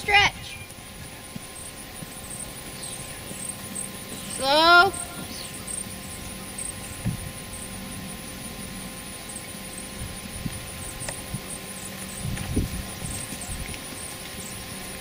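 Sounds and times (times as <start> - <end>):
faint steady hum: 0.0 - 15.0
hooves thudding on sand: 0.5 - 7.3.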